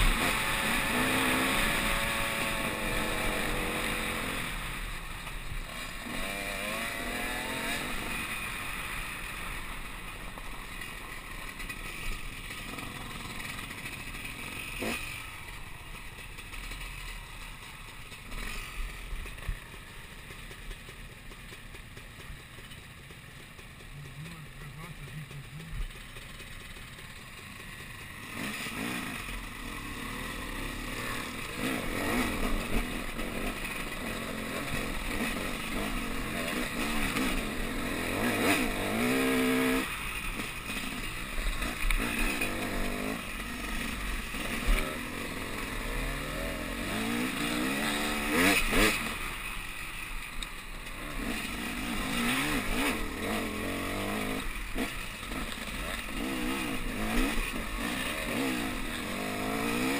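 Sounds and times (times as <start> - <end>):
dirt bike engine revving: 0.0 - 22.6, 23.5 - 59.9.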